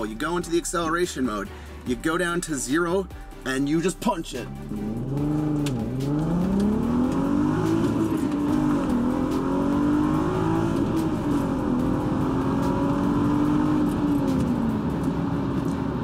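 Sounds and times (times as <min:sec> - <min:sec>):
car engine accelerating: 0:04.6 - 0:16.0.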